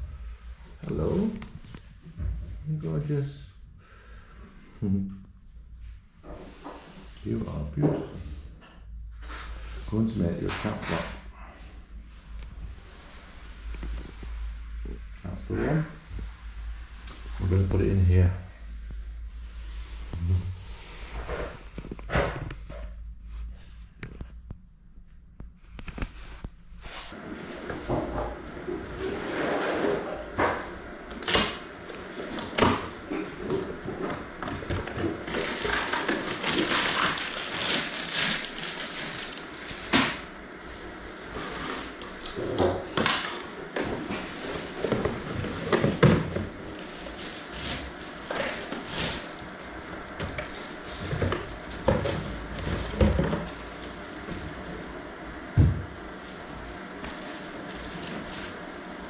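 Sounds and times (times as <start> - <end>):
cardboard packaging rustling: 32.2 - 42.0, 44.0 - 59.0
plastic bag crinkling: 34.5 - 40.3, 44.3 - 59.0.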